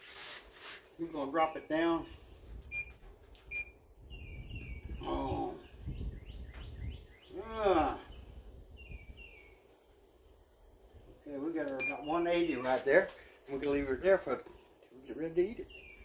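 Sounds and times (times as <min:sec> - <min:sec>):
birds chirping: 0:02.7 - 0:16.0
rising and falling bird calls: 0:03.7 - 0:10.9
short electronic beeps: 0:11.8 - 0:12.1.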